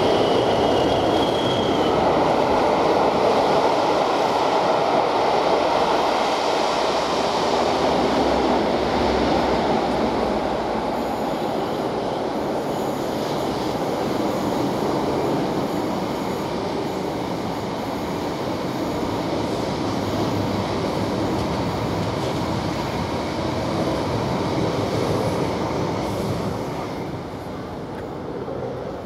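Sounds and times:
train wheels on rails: 0.0s - 29.0s.

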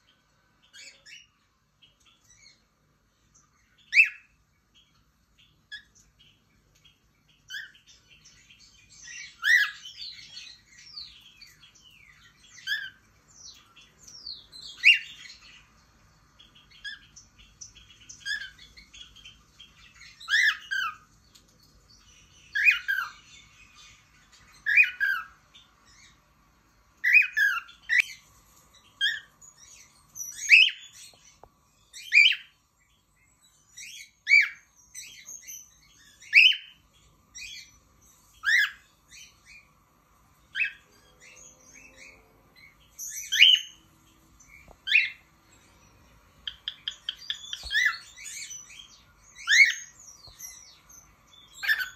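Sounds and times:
cockatiel chirps and whistles: 3.9s - 4.3s, 9.2s - 10.2s, 12.6s - 13.0s, 14.7s - 15.2s, 20.2s - 21.0s, 22.5s - 23.2s, 24.6s - 25.4s, 27.0s - 28.2s, 30.3s - 31.0s, 32.0s - 32.5s, 33.8s - 36.8s, 38.4s - 38.8s, 40.5s - 40.8s, 43.1s - 43.8s, 44.8s - 45.2s, 46.4s - 50.6s, 51.5s - 51.9s.

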